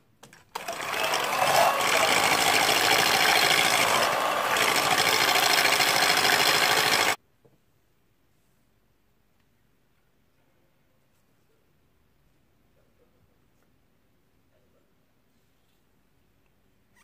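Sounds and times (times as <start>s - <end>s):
electric hand mixer running: 0.6s - 7.2s.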